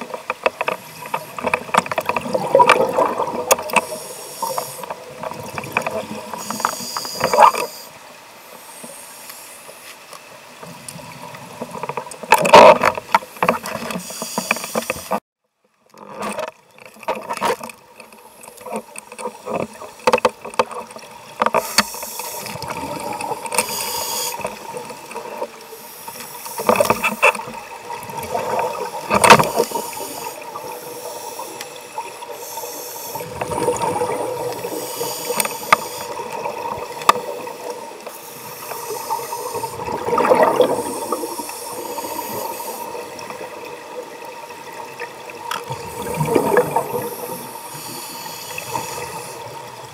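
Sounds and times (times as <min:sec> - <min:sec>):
underwater regulator bubbles: 0:00.0 - 0:07.8, 0:18.6 - 0:32.4, 0:33.1 - 0:49.9.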